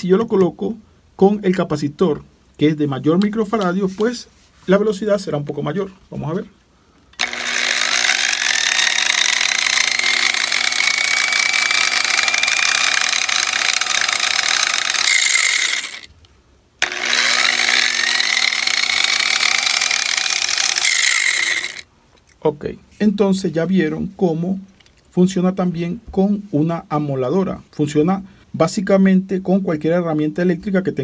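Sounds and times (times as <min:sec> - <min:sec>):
angle grinder whine: 0:07.2 - 0:16.1, 0:16.8 - 0:21.8.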